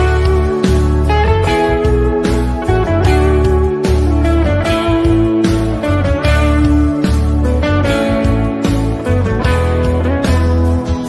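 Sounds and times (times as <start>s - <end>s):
guitar melody: 0.0s - 11.0s
low bass notes: 0.0s - 11.0s.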